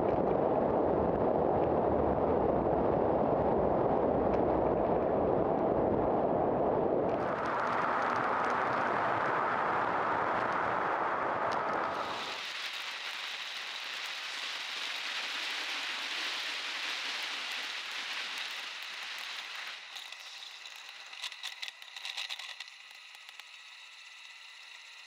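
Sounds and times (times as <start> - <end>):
bicycle tyre and wind hiss: 6.3 - 25.0
bicycle clicks and rattles: 19.2 - 25.0.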